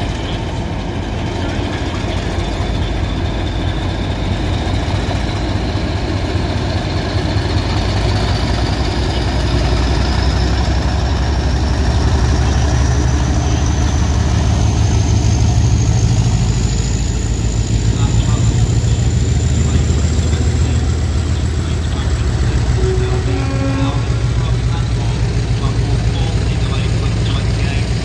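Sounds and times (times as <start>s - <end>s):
diesel locomotive engine rumble: 0.0s - 28.0s.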